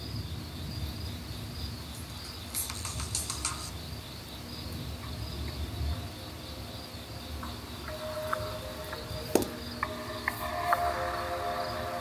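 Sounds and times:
crickets chirping: 0.0 - 12.0
steady musical tones: 5.3 - 12.0.

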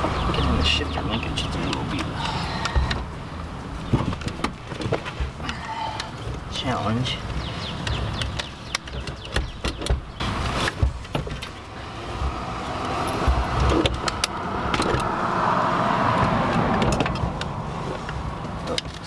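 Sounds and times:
steering column knocks and rattles: 3.8 - 5.6, 7.2 - 15.1.

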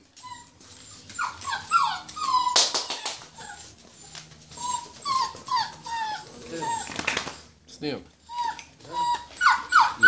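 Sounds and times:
puppies whining and yipping: 0.0 - 7.5, 8.2 - 10.0
puppies scuffling: 0.0 - 10.0.

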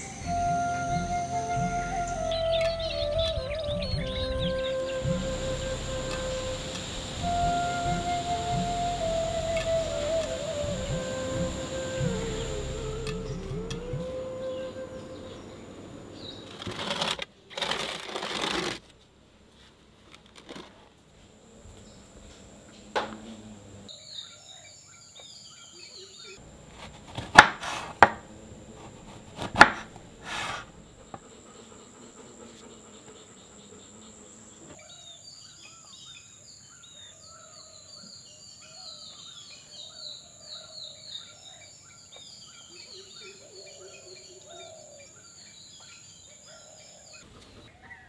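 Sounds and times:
birds chirping: 0.0 - 16.6
high insect drone: 0.0 - 17.0, 27.7 - 37.5.

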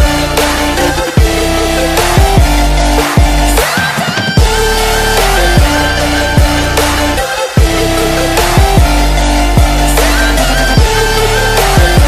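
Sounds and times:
electronic music: 0.0 - 12.0.

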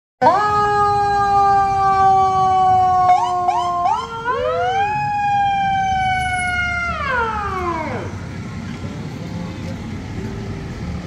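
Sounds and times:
electronic siren: 0.2 - 8.3.

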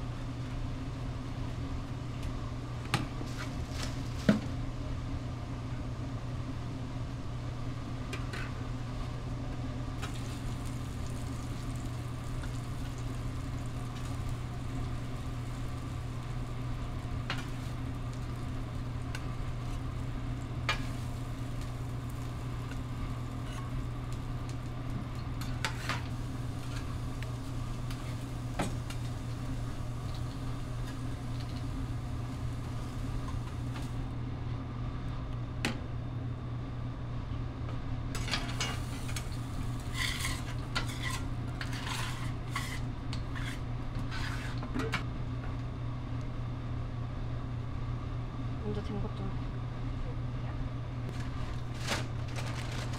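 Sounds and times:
kitchen low hum: 0.0 - 52.9
food sizzling on a griddle: 9.9 - 34.1, 38.2 - 43.6.

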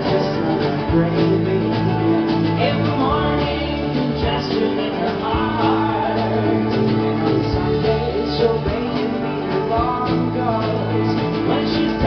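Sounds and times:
acoustic guitar strumming: 0.0 - 12.0
drums: 0.0 - 12.0
man singing: 0.0 - 12.0
mandolin strumming: 0.0 - 12.0.

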